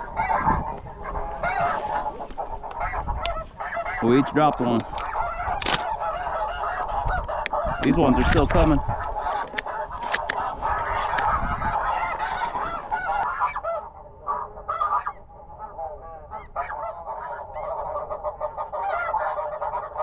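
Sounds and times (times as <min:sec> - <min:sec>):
wind rumble on microphone: 0:00.0 - 0:13.2
geese honking: 0:00.0 - 0:20.0.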